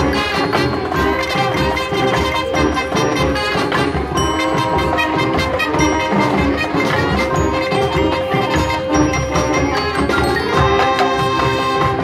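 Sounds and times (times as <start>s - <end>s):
drum and mallet percussion: 0.0s - 12.0s
marching band held notes: 0.0s - 12.0s.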